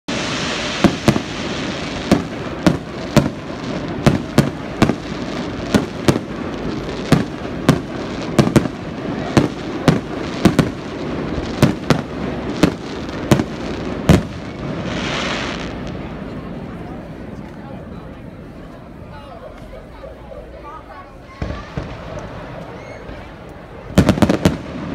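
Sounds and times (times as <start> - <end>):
steady hiss: 0.1 - 16.6
fireworks bangs: 0.1 - 17.6, 21.3 - 24.9.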